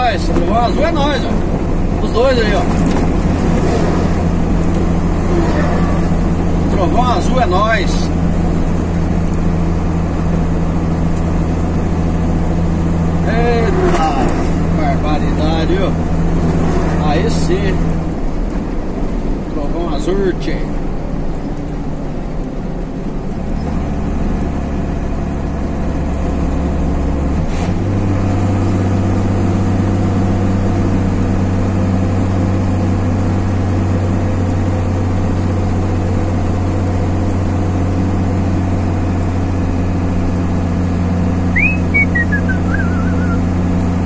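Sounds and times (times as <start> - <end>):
road noise: 0.0 - 44.0
truck engine running: 0.0 - 44.0
short high falling chirp: 41.6 - 43.4.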